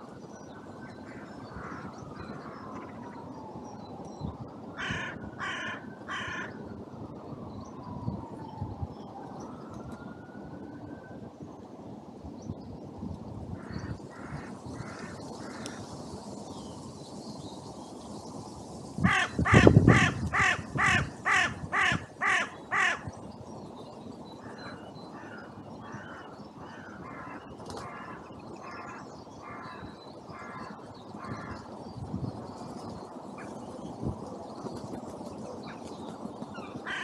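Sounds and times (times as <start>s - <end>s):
crows cawing: 4.8s - 6.6s, 13.6s - 15.8s, 19.0s - 23.0s.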